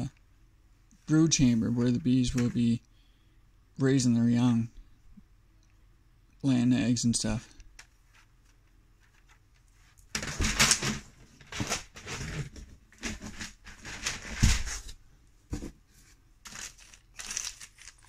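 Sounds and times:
plastic sheets rustling and scraping: 8.0 - 18.0.

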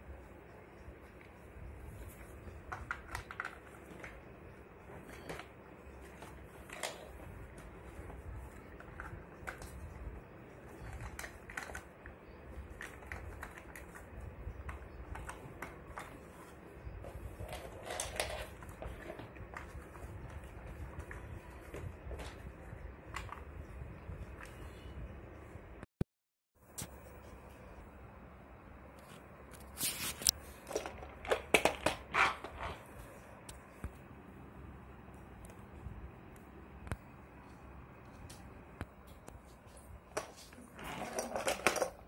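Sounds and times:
hard plastic parts clicking and knocking: 30.6 - 32.8.

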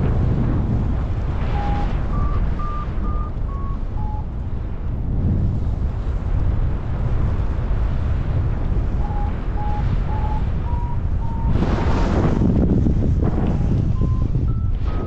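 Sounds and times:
wind rumbling over microphone: 0.0 - 15.0
variometer beeping: 1.4 - 4.4, 9.0 - 11.6, 13.9 - 15.0.

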